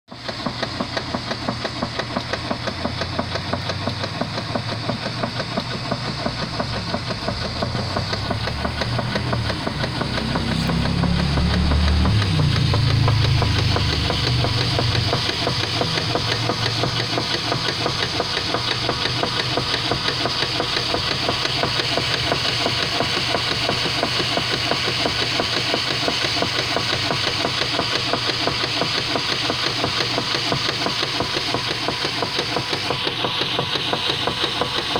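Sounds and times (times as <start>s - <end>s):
washing machine pulsing mechanical noise: 0.1s - 34.9s.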